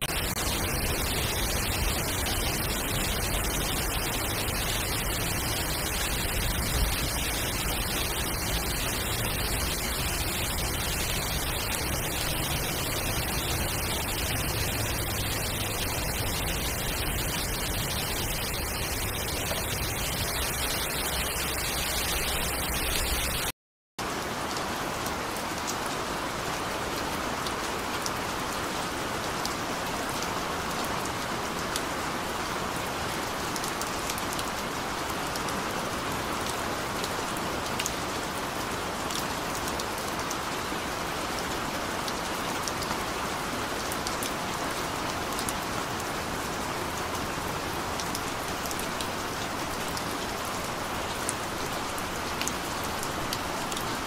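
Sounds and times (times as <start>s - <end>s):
raindrops ticking: 0.0s - 23.5s, 46.9s - 54.0s
steady rain: 0.0s - 54.0s.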